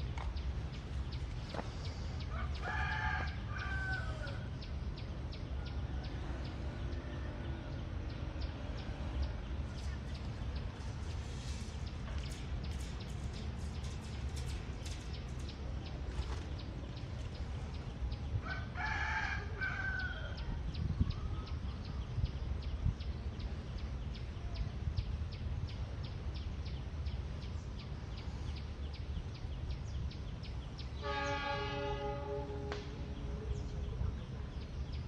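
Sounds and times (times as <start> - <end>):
rooster crowing: 2.3 - 4.5, 18.4 - 20.5
locomotive horn: 31.0 - 33.2.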